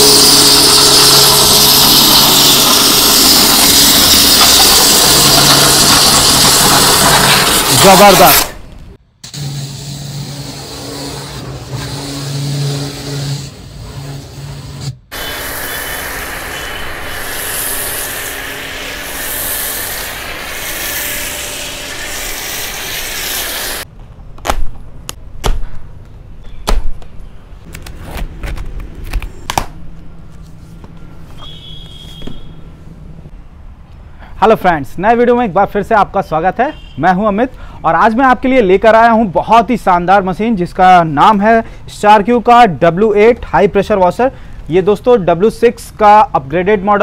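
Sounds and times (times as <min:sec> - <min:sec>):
pressure washer motor humming: 0:00.0 - 0:08.5, 0:15.1 - 0:23.8
hiss of water spray: 0:15.1 - 0:23.8.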